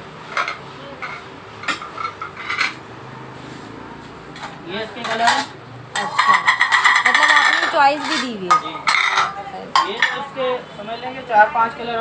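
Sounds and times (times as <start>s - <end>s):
ceramic plates clinking: 0.3s - 2.8s, 4.4s - 10.5s.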